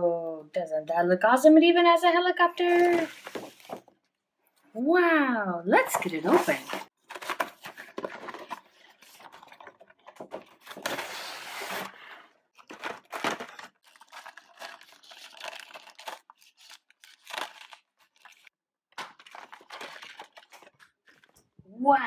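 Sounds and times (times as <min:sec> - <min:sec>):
plastic packaging crinkling and tearing: 0:12.6 - 0:21.4.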